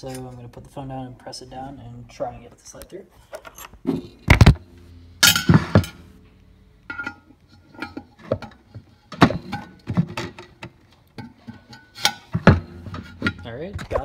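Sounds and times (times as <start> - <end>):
phone thumping down: 4.3 - 4.6.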